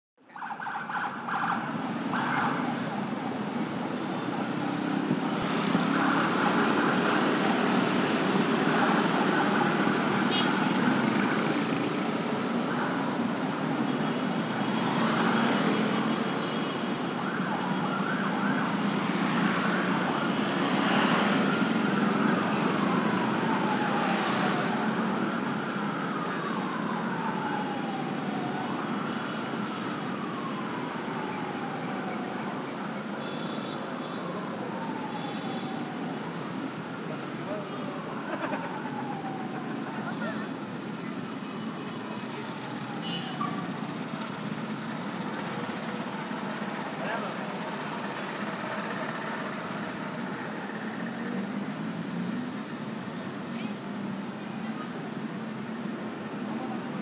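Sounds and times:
street traffic: 0.2 - 57.0
siren wailing: 0.3 - 3.2, 12.7 - 43.8.

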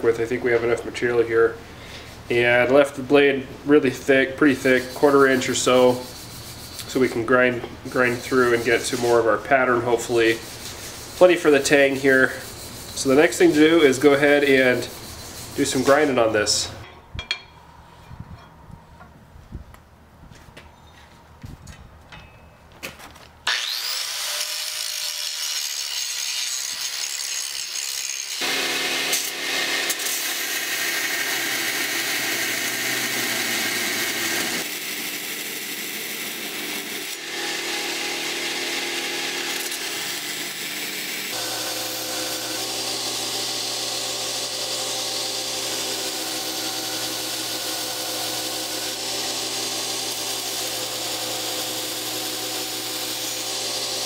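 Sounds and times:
belt grinder grinding steel blade: 4.4 - 16.8, 23.4 - 54.0.

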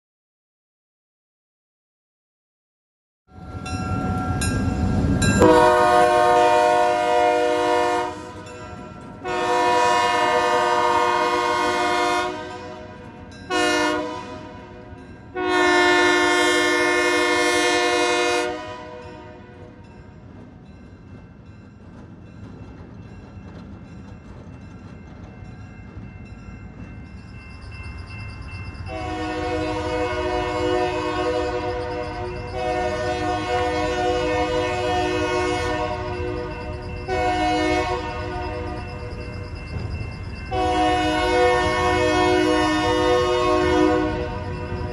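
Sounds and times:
locomotive horn blasts: 5.4 - 19.6, 28.9 - 39.0, 40.5 - 44.8.

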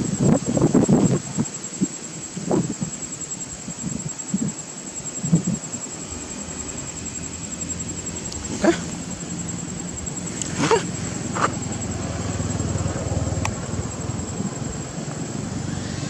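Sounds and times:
steady low hum: 0.0 - 16.0
short sharp animal calls: 10.4 - 11.8.

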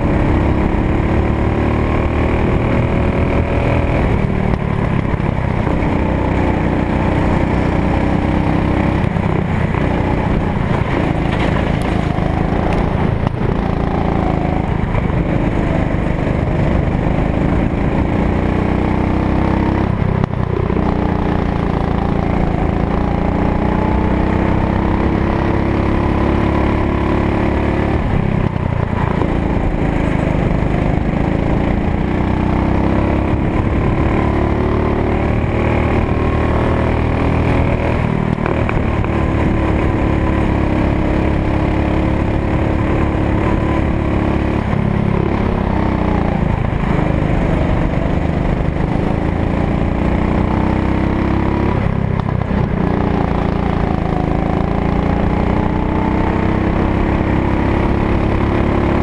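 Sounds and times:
kart engine running hard: 0.0 - 59.0.

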